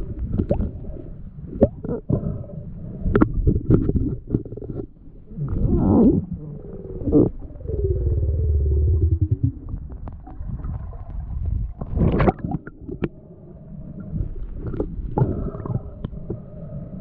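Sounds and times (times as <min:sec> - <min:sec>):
underwater rumble of moving water: 0:00.0 - 0:17.0
water gurgling rushes: 0:05.3 - 0:13.1.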